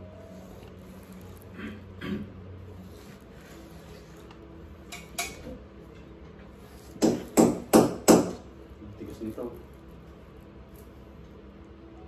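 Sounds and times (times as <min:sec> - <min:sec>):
hammer striking a wall: 0:07.0 - 0:08.5.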